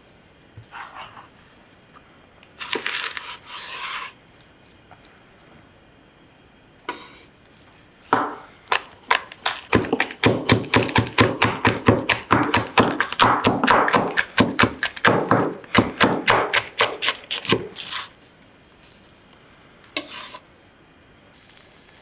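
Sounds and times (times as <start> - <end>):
knife chopping on wooden board: 8.2 - 18.0.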